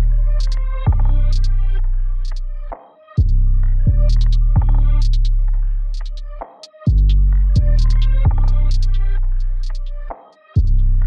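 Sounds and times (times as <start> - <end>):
deep electronic bass note: 3.2 - 6.0, 7.0 - 9.8.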